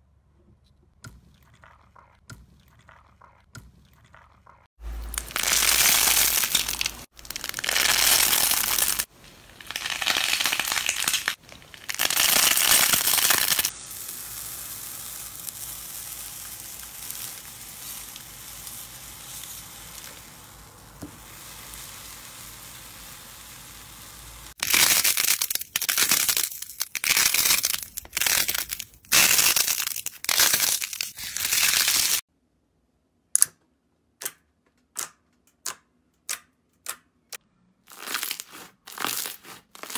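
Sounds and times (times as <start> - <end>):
foam clay crackling: 1.2 - 32.3, 37.8 - 39.9
slime crackling and crunching: 4.8 - 20.3, 24.5 - 32.2, 37.8 - 39.9
potato masher crunching sand: 37.9 - 39.9.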